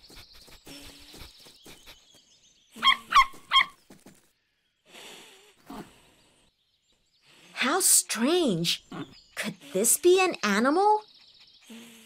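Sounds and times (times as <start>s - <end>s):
cartoon puppy sniffing: 0.0s - 2.2s, 2.8s - 3.6s, 9.4s - 12.0s.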